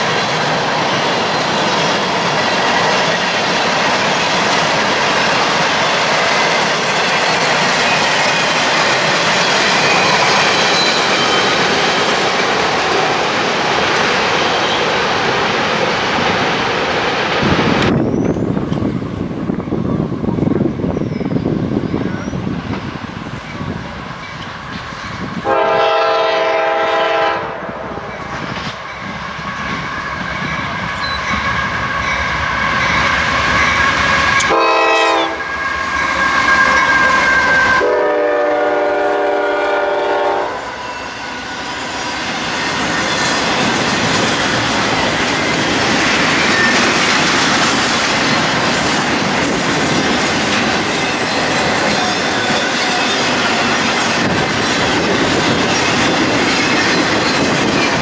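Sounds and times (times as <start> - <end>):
train wheels clickety-clack on rails: 0.0 - 40.4, 41.3 - 58.0
locomotive air horn blasts: 25.4 - 28.0, 34.4 - 35.6, 36.3 - 41.2.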